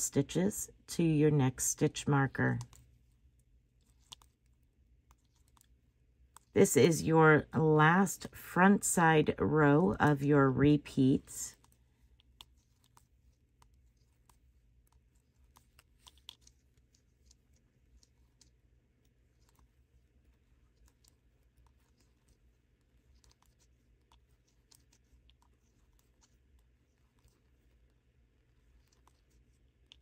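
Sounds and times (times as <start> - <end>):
low steady hum: 0.0 - 30.0
knitting needles clicking: 1.6 - 2.9, 3.8 - 5.7, 9.7 - 18.6.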